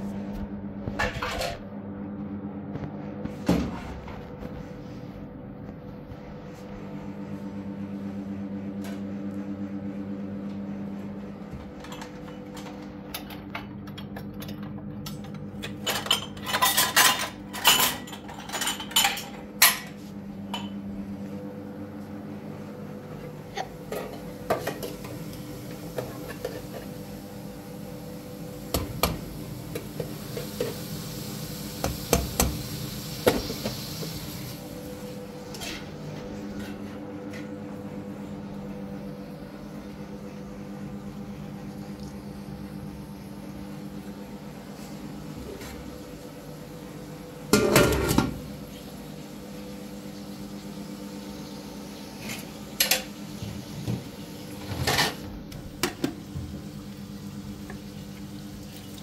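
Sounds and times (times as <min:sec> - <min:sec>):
steady low hum: 0:00.0 - 0:30.9
dishes and cutlery clattering: 0:15.6 - 0:20.0.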